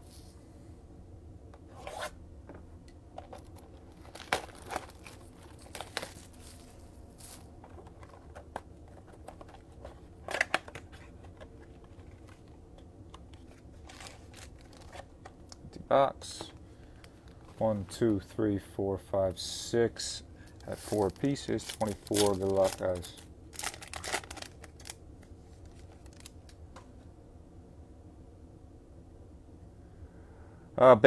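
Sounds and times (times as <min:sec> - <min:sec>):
foil packs crinkling: 0:03.2 - 0:12.5, 0:13.4 - 0:15.1, 0:20.4 - 0:26.6
packaging tearing: 0:03.3 - 0:06.4, 0:20.5 - 0:25.0, 0:25.6 - 0:26.5.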